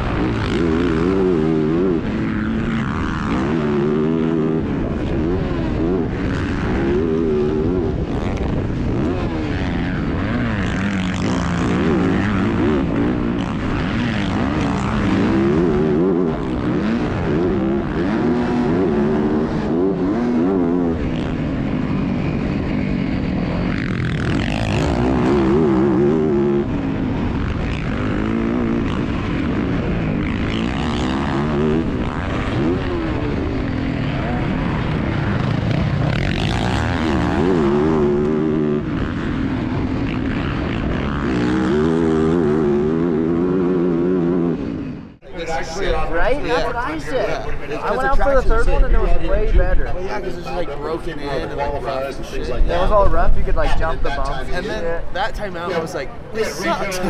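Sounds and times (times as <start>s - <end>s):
motorbike engine revving: 0.0s - 45.2s.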